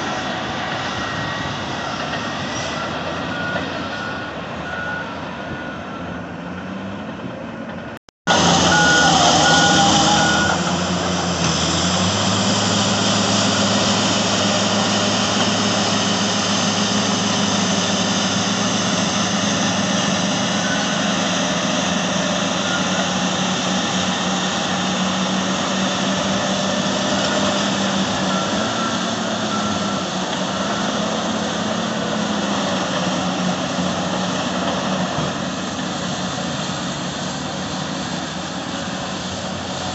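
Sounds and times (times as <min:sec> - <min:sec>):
heavy diesel engines under load: 0:00.0 - 0:39.9
reversing alarm beeps: 0:02.6 - 0:06.3, 0:08.3 - 0:10.8, 0:19.5 - 0:23.4, 0:27.1 - 0:31.3.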